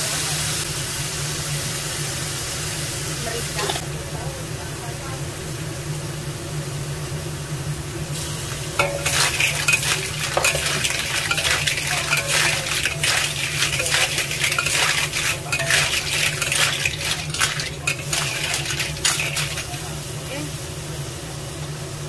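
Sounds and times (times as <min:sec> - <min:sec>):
sizzle: 0:00.0 - 0:04.4, 0:05.3 - 0:22.0
shells clattering in wok: 0:08.8 - 0:20.0
spatula scraping wok: 0:08.8 - 0:20.0.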